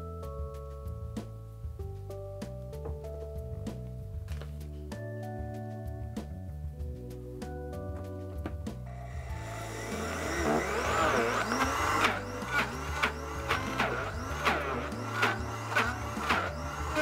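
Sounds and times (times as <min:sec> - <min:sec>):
blender motor whining: 0:08.9 - 0:17.0.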